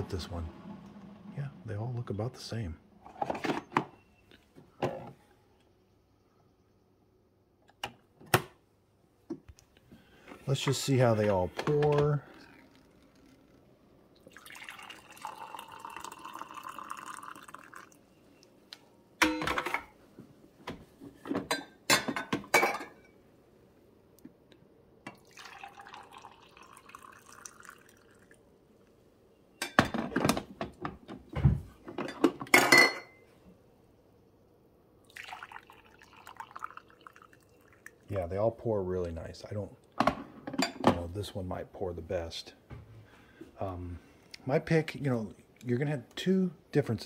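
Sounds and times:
coffee pouring into glass mug: 14.1 - 18.5, 25.1 - 28.4, 35.0 - 38.2
carafes and mugs clinking: 14.3 - 18.0, 19.2 - 20.0, 21.4 - 23.2, 25.1 - 28.4, 31.9 - 33.2, 35.1 - 38.0.

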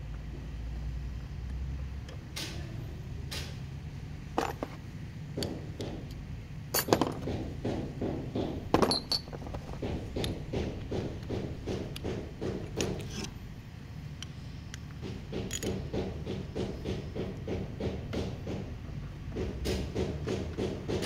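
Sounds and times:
hand tools clinking on metal: 8.8 - 9.6.

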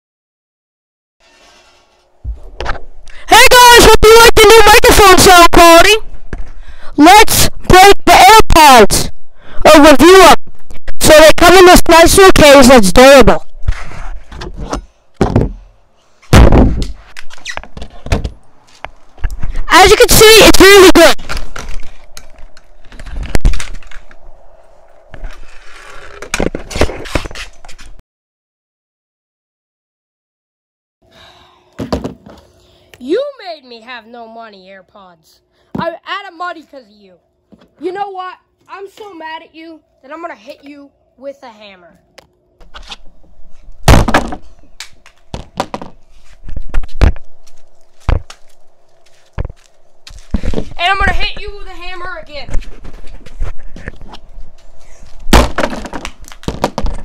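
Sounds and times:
handling knocks and scraping: 13.5 - 19.7, 21.1 - 28.0, 42.6 - 57.0.

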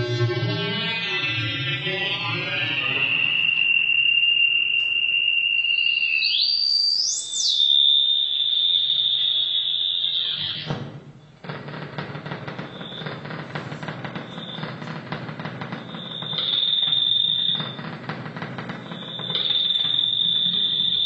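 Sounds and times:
fluttering noisy electronic texture: 0.0 - 3.6
high whistling electronic tone: 0.0 - 10.9, 15.7 - 18.1, 18.7 - 21.0.

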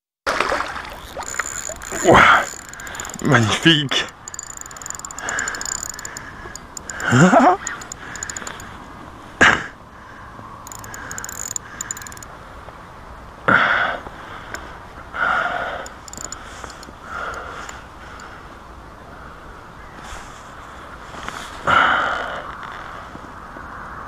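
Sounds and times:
fishing reel clicking: 0.6 - 8.7, 10.6 - 12.3, 15.8 - 18.3.

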